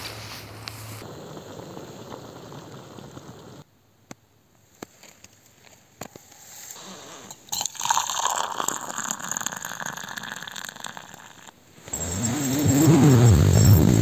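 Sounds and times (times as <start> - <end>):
water pouring into steel cup: 7.2 - 11.6
low wavering pitched sound: 11.9 - 14.0.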